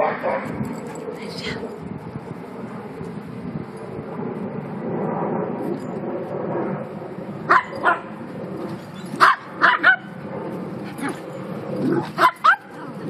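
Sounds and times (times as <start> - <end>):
dogs barking: 0.0 - 0.6, 7.5 - 8.2, 9.0 - 10.2, 11.8 - 13.0.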